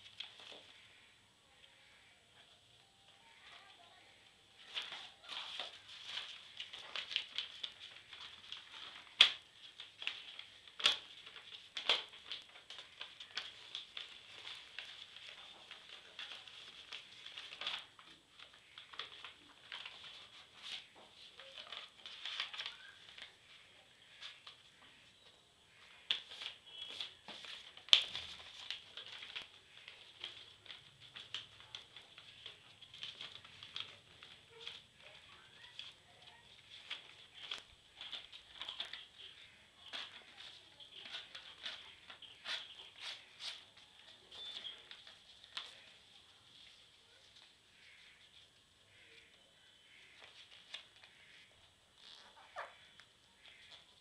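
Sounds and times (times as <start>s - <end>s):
paper rustling and crinkling: 0.0s - 0.9s, 4.6s - 54.0s
paper snaps: 4.6s - 20.9s, 26.0s - 36.0s.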